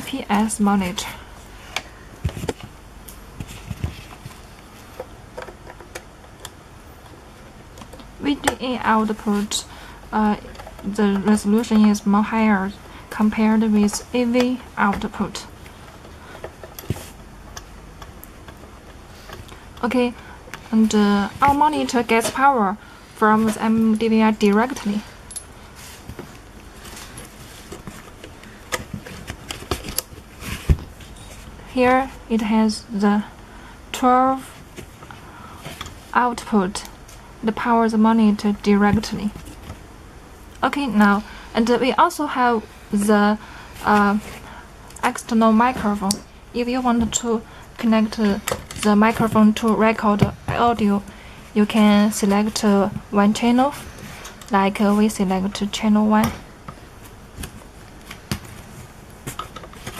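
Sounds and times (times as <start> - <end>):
cables rustling: 0.0 - 32.2.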